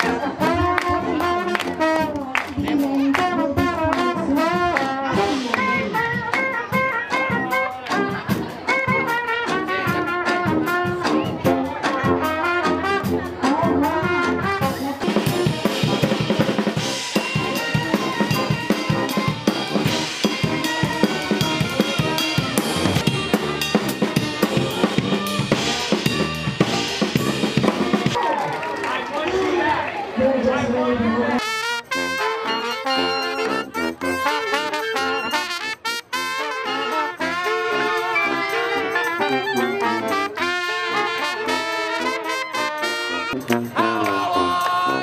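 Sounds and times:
brass band playing: 0.0 - 28.8, 30.4 - 45.0
drum kit and cymbals: 14.2 - 28.2.

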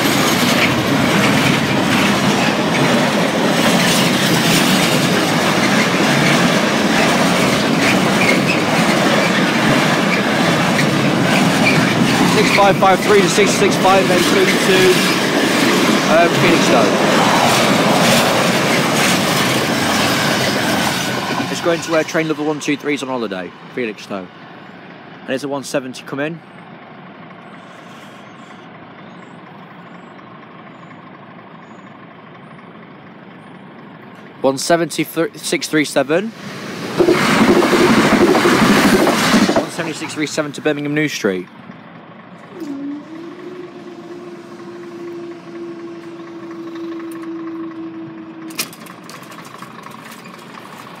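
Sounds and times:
crossing barrier mechanism humming: 0.0 - 51.0
diesel train engine and rail noise: 0.0 - 51.0
faint high tone: 42.5 - 48.6.

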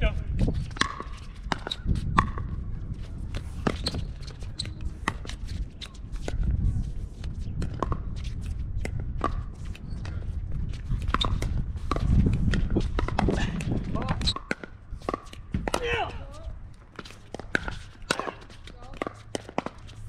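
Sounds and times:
wind rumble on microphone: 0.0 - 19.0
paddles hitting ball: 16.9 - 19.8.

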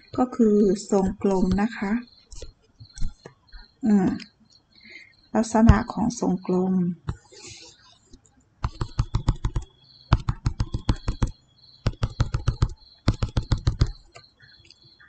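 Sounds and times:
stylus tapping on tablet screen: 0.0 - 4.3, 7.0 - 7.3, 8.6 - 14.5.

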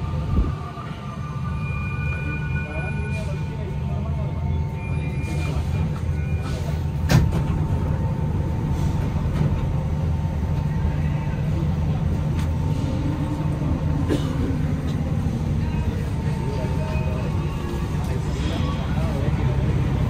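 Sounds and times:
metro car rumble and hum: 0.0 - 20.0.

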